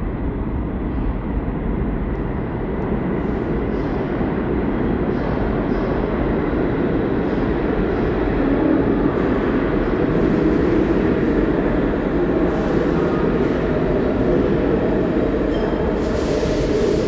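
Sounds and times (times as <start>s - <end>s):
subway train rumbling: 0.0s - 17.0s.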